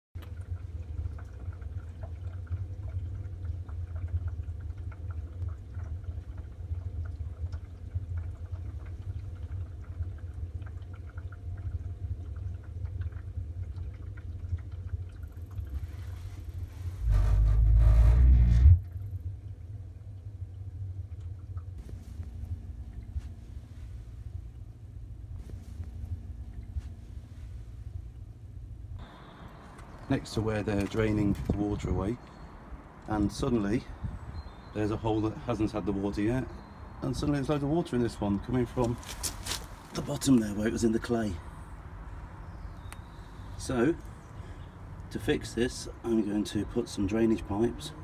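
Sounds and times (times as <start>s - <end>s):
boiler humming: 0.2s - 48.0s
water sounds: 0.2s - 48.0s
loud low rumble: 16.9s - 21.2s.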